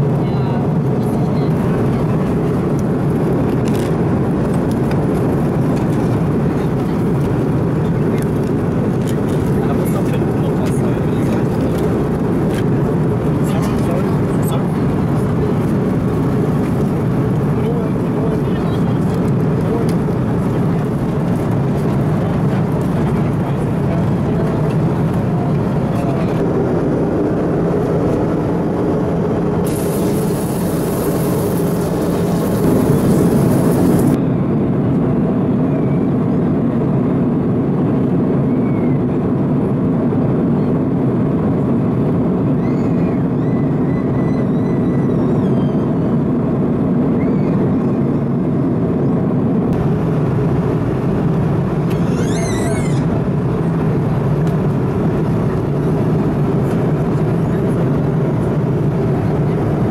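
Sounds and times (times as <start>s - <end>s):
airliner cabin noise: 0.0s - 59.9s
hissing rush: 29.6s - 34.2s.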